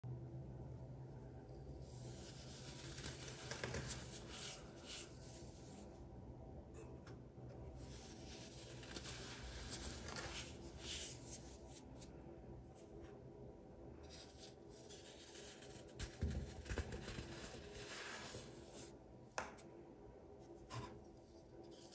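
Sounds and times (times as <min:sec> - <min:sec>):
fingers crumbling baking soda: 0:14.1 - 0:19.6.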